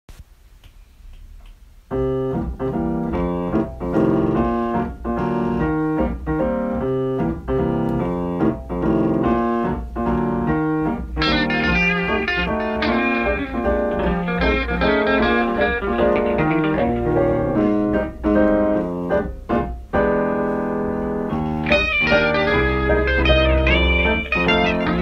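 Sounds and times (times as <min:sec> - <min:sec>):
jazz piano chords: 0:01.8 - 0:25.0
bass line: 0:07.4 - 0:19.1, 0:21.4 - 0:25.0.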